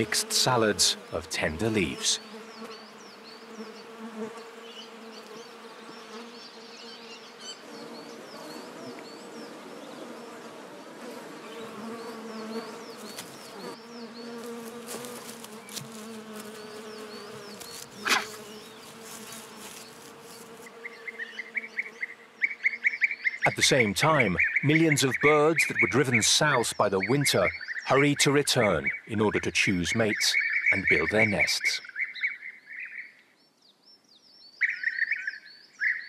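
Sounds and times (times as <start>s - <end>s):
flying insects buzzing: 0.0s - 28.7s.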